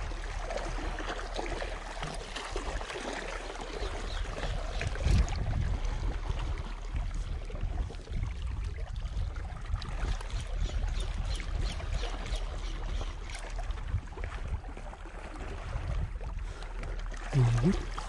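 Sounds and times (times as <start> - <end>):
water lapping among rocks: 0.0 - 18.0
wind rumble on microphone: 3.8 - 18.0.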